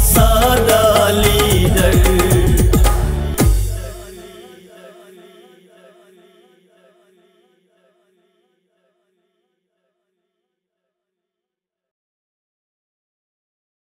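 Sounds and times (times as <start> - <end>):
steady drone: 0.0 - 5.2
held wavering vocal note: 0.0 - 7.1.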